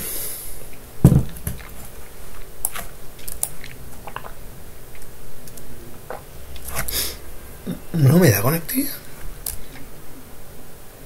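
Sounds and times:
thump close to microphone: 0:01.0 - 0:01.6.

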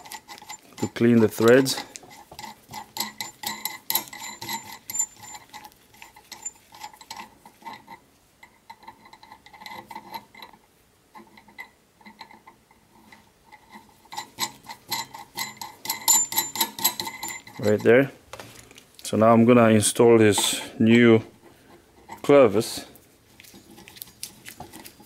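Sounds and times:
metal nut clicking on threads: 0:00.0 - 0:10.6, 0:11.2 - 0:19.1.

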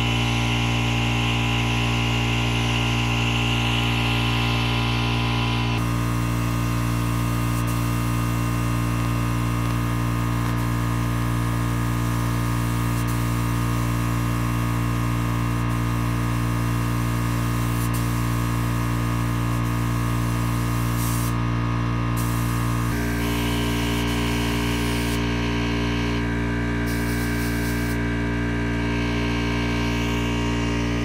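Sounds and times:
air compressor humming: 0:00.0 - 0:31.0
spray gun hissing: 0:15.5 - 0:21.4, 0:22.2 - 0:25.2, 0:26.9 - 0:28.0.

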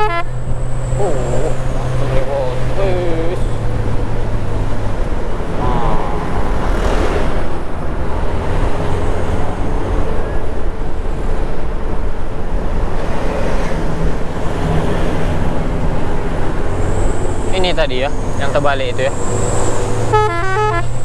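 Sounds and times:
bus engine running: 0:00.0 - 0:21.0.

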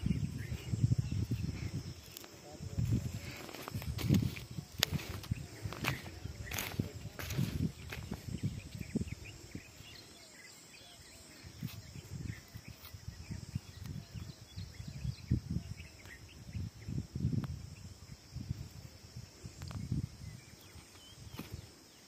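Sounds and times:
high insect drone: 0:00.0 - 0:22.0
small birds chirping: 0:00.0 - 0:22.0
low thuds and rustling: 0:02.8 - 0:08.9.

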